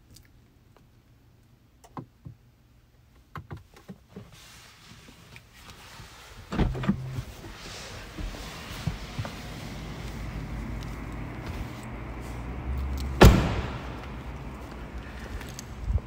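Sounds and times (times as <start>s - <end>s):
car door thumps and knocks: 13.2s - 14.0s.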